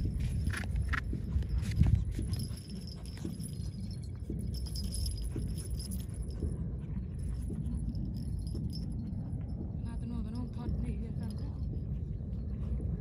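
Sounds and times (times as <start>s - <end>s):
metal harness jingling: 0.0s - 6.6s
low steady rumble: 0.0s - 13.0s.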